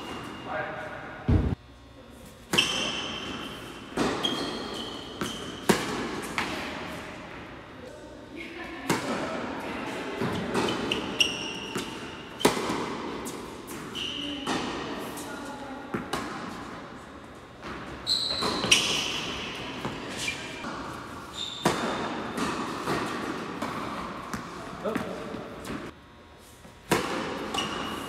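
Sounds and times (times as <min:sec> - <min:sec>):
sneakers squeaking on court: 0:00.0 - 0:00.5, 0:02.4 - 0:07.1, 0:09.9 - 0:16.8, 0:17.4 - 0:25.9, 0:27.0 - 0:28.0
tennis ball bouncing: 0:02.5 - 0:06.8, 0:10.2 - 0:15.2, 0:17.6 - 0:25.9, 0:26.8 - 0:28.0
tennis ball hit by racket: 0:05.2 - 0:06.8, 0:11.7 - 0:15.2, 0:21.6 - 0:25.8, 0:26.8 - 0:28.0.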